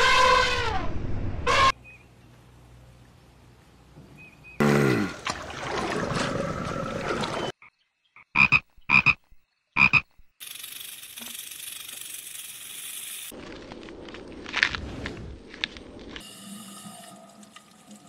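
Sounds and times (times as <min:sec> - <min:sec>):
tree frog croaking: 0:07.6 - 0:10.2.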